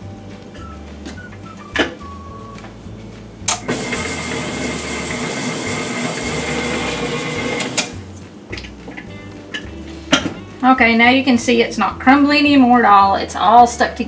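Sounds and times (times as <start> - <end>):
stand mixer motor whining: 3.5 - 7.9.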